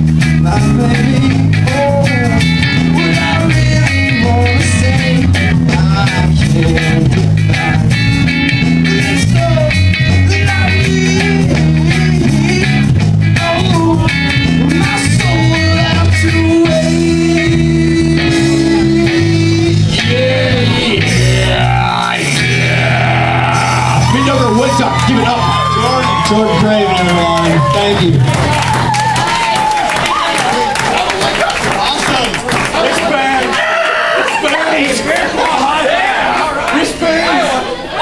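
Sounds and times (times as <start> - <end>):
electric guitar: 0.0 - 29.8
bass guitar line: 0.0 - 30.6.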